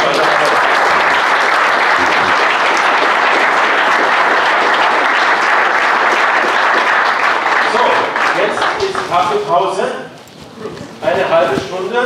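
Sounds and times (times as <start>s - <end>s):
large audience applauding: 0.0s - 9.5s.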